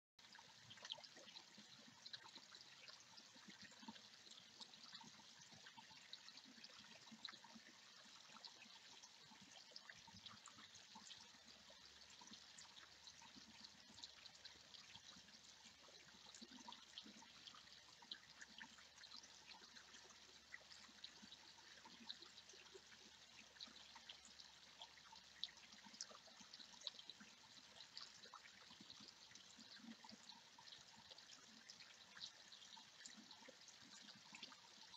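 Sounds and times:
small waterfall trickling over rocks: 0:00.2 - 0:34.9
water drips and splashes: 0:00.2 - 0:34.9.

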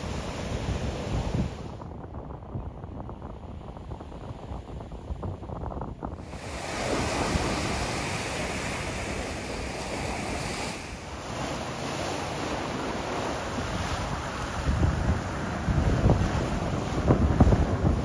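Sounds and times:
ocean surf breaking: 0:00.0 - 0:01.8, 0:06.2 - 0:18.0
wind buffeting microphone: 0:00.0 - 0:18.0.

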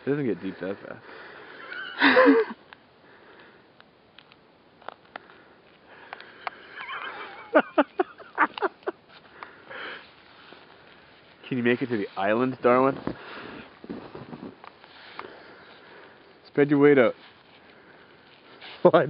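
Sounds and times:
person laughing in breathy bursts: 0:01.5 - 0:02.7, 0:06.5 - 0:09.0.

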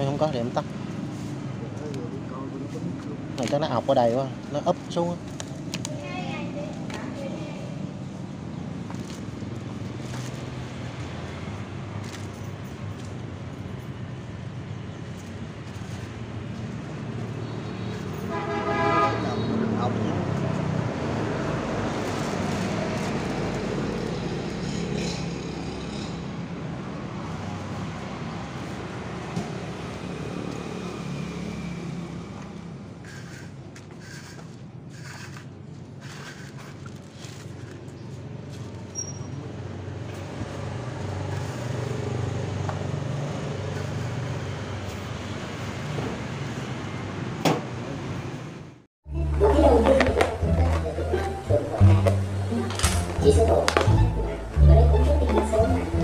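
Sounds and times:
road traffic noise: 0:00.0 - 0:56.0
vehicle engine humming: 0:49.1 - 0:56.0.

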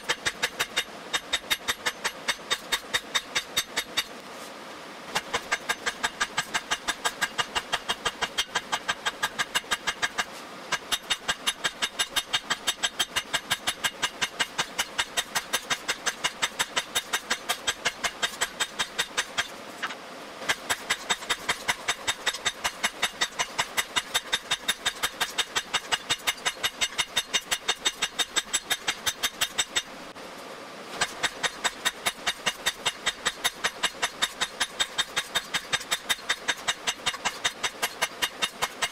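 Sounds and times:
hammer striking steel on anvil: 0:05.2 - 0:19.9, 0:20.5 - 0:29.9.

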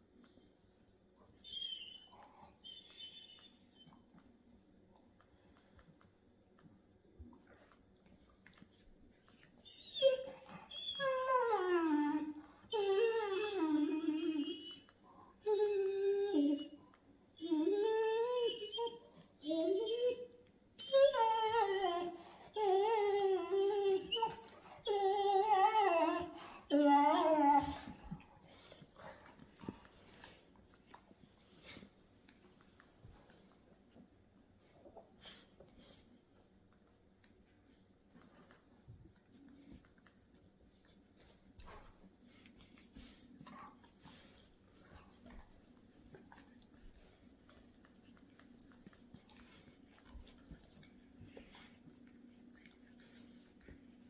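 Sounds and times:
dog whining: 0:01.4 - 0:04.0, 0:09.4 - 0:16.8, 0:17.4 - 0:29.8.

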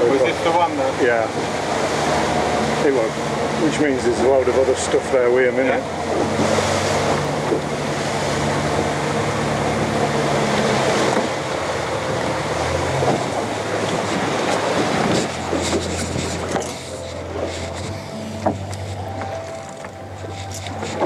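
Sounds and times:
boat engine running: 0:00.0 - 0:21.0
water rushing along hull: 0:00.0 - 0:21.0
wind on microphone: 0:12.2 - 0:21.0.

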